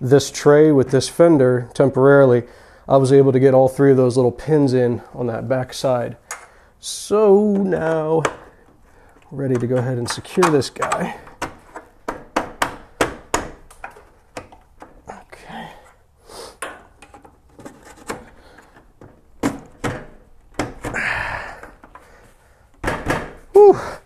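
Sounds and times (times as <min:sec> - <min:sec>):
plastic clicks and knocks: 0:07.5 - 0:15.0, 0:16.6 - 0:21.0.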